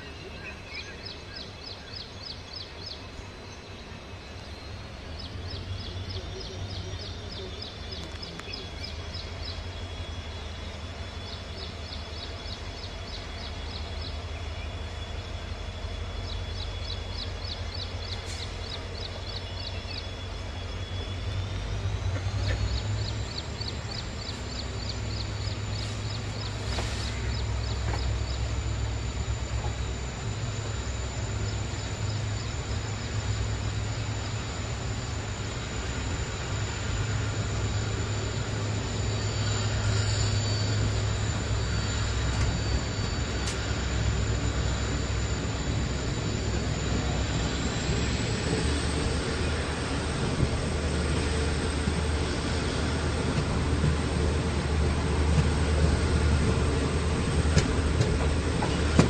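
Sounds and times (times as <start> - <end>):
train coaches rumbling: 0.0 - 59.0
thin high whine: 25.5 - 59.0.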